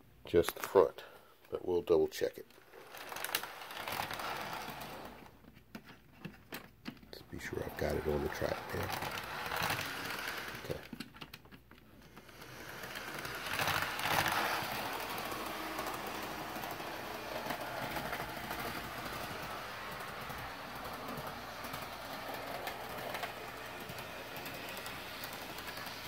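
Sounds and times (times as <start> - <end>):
model train motor whirring: 2.7 - 5.4, 7.4 - 11.0, 12.0 - 26.0.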